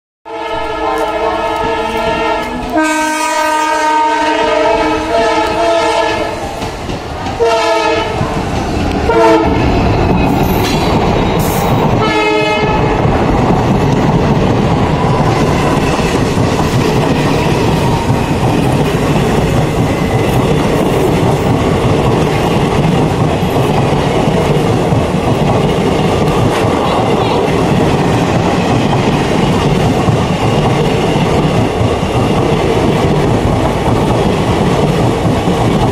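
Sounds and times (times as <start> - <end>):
locomotive horn: 0.3 - 6.4, 7.4 - 8.2, 9.1 - 9.6, 12.0 - 13.0
train wheels clattering: 5.0 - 35.9.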